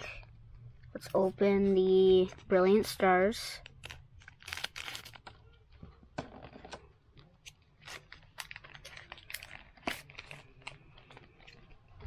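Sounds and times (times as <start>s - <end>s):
foil wrapper crinkling: 3.6s - 5.4s, 7.7s - 12.0s.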